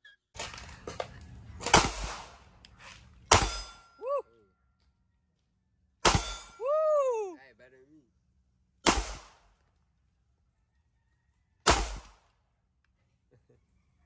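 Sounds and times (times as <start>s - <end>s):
pistol shots with echo: 8.8s - 9.4s, 11.6s - 12.2s.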